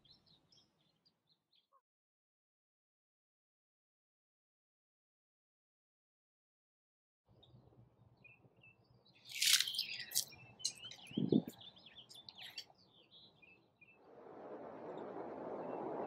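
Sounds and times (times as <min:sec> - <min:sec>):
birds chirping: 0:07.4 - 0:14.1
steady rushing noise: 0:14.0 - 0:16.0.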